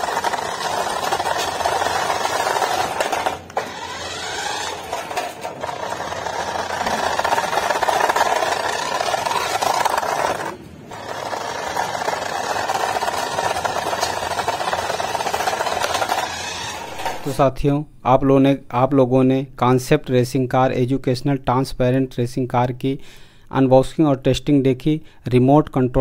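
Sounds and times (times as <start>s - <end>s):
toy car electric motor running: 0.0s - 17.4s.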